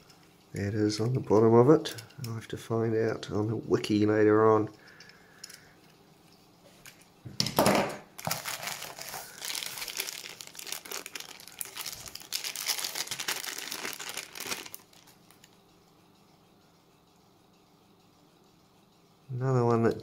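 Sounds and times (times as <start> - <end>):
plastic bag crinkling: 8.2 - 15.6.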